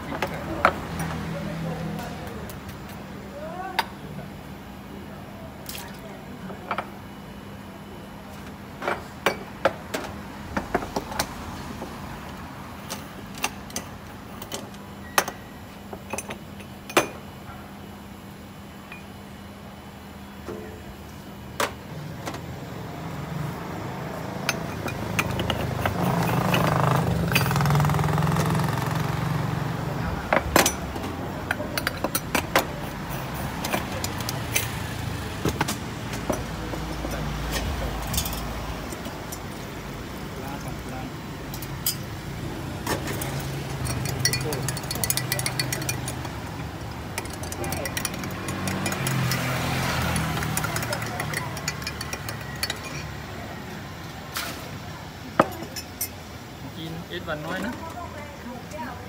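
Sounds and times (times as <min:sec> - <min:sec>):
motor vehicle passing: 0:23.0 - 0:30.1, 0:42.2 - 0:53.3
metal pots clinking on stove: 0:47.2 - 0:53.2.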